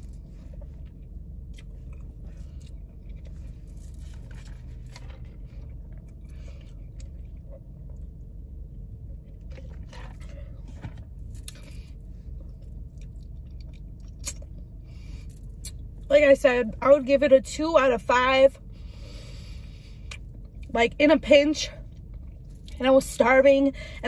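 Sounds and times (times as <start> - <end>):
low rumble: 0.0 - 21.0
person chewing food: 0.5 - 3.4.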